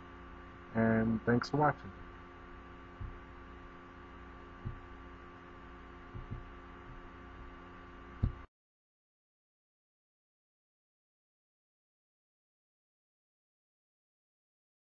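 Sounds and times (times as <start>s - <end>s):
electrical hum: 0.0s - 8.5s
faint low thumps: 2.9s - 3.3s, 4.6s - 5.0s, 6.1s - 7.1s, 8.2s - 8.5s.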